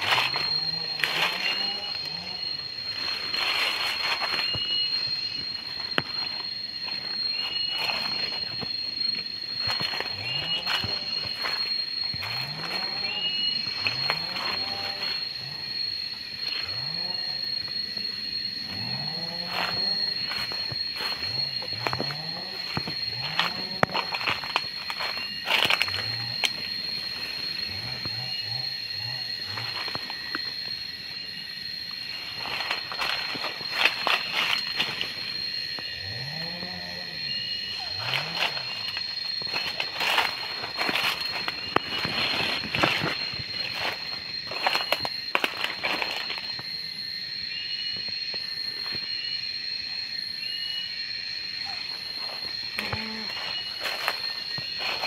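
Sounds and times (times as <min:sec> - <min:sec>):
leaves rustling: 0:00.0 - 0:15.3, 0:37.9 - 0:46.3
high-pitched drone: 0:00.0 - 0:55.0.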